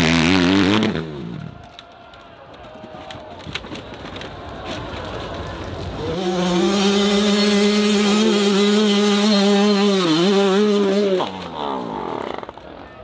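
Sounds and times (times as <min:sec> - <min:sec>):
dirt bike engine revving: 0:00.0 - 0:01.5, 0:05.9 - 0:12.5.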